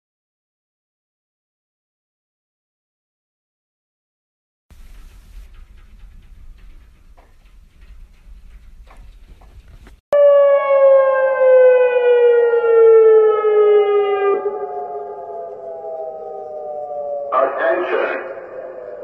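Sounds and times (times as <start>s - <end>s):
warning siren sliding down in pitch: 10.2s - 19.0s.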